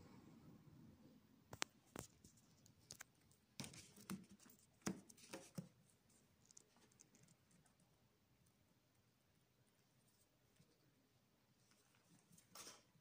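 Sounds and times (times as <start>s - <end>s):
soft clicks and taps of book handling: 1.5s - 5.8s.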